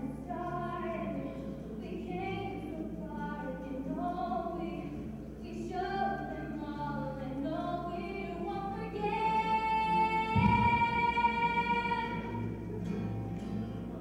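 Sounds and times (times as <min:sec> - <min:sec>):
woman singing into microphone: 0:00.0 - 0:12.5
acoustic guitars: 0:00.0 - 0:14.0
low thump: 0:10.4 - 0:10.8.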